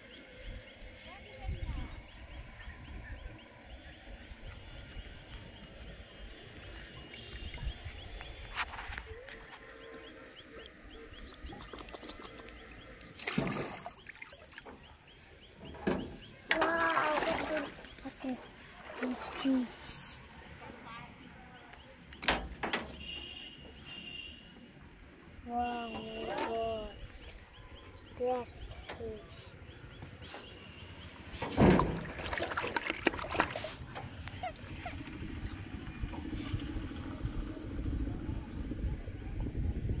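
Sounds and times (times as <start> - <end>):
fish splashing in a bucket: 11.4 - 14.8, 16.5 - 20.0, 31.4 - 34.2
low rumble: 34.8 - 40.0.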